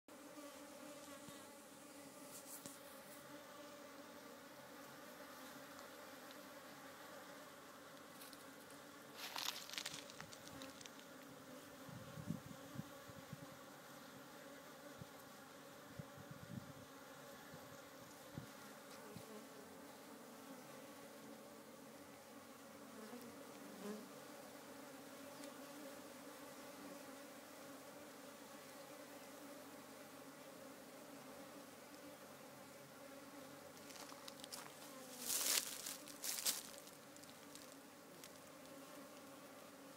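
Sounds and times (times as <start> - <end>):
bees humming in hive: 0.1 - 39.9
crackling rustle: 8.0 - 11.3, 33.8 - 39.3.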